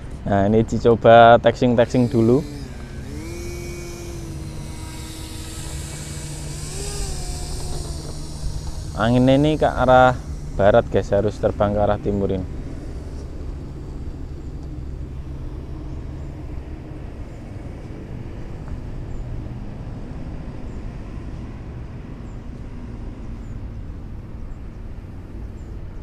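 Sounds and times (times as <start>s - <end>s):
model plane electric motor hum: 0.0s - 26.0s.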